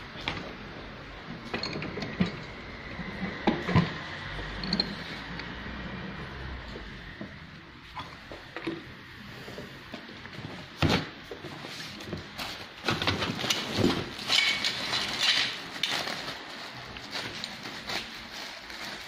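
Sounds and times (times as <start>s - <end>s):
rustling: 11.3s - 19.0s.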